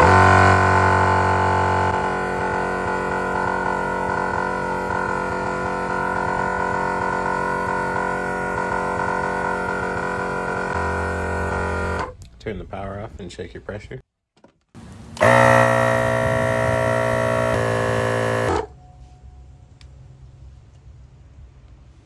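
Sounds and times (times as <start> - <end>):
air compressor humming: 0.0 - 12.2, 14.8 - 18.8.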